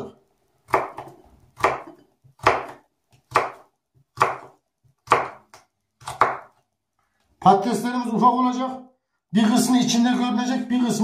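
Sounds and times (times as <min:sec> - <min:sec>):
knife slicing potato: 0:00.6 - 0:06.6.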